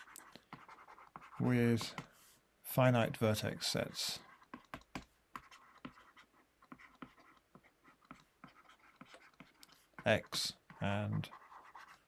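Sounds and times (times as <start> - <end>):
stylus tapping on tablet screen: 4.4 - 9.8.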